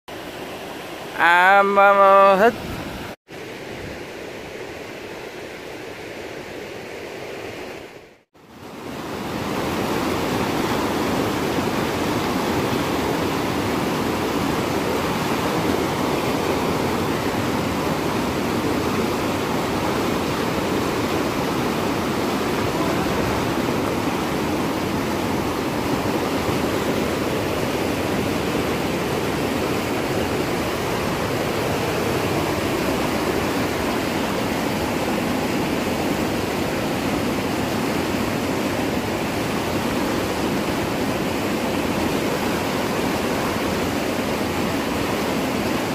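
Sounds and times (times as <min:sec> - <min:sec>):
river rapids rushing: 0:00.1 - 0:45.9.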